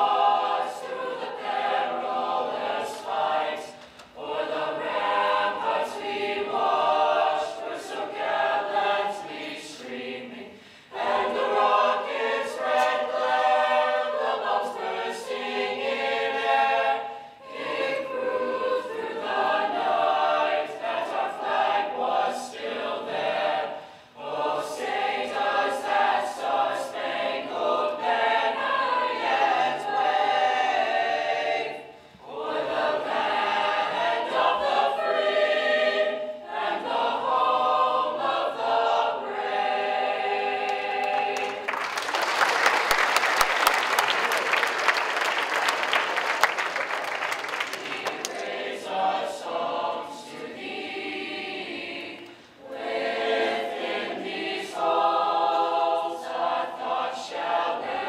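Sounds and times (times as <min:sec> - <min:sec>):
choir singing: 0:00.0 - 0:58.0
audience clapping: 0:40.6 - 0:48.9.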